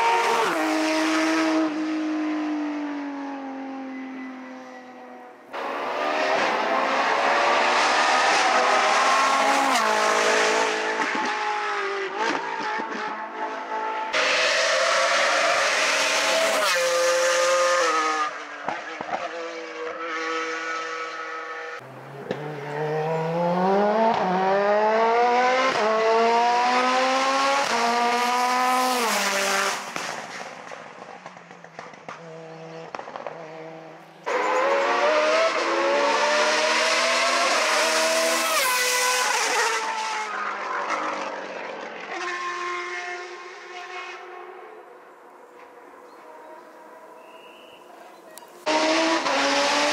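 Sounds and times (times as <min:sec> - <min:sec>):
racing car engines accelerating past: 0:05.6 - 0:30.5, 0:31.8 - 0:44.6, 0:48.6 - 0:49.9.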